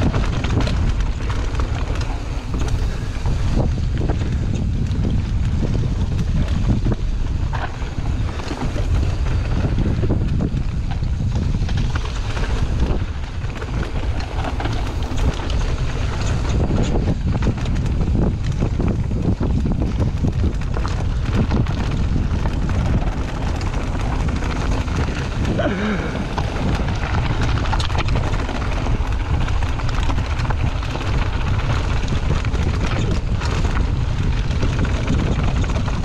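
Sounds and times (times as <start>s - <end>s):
bike rattling clicks: 0.0s - 36.0s
bike tyres on dirt trail: 0.0s - 36.0s
wind buffeting microphone: 0.0s - 36.0s.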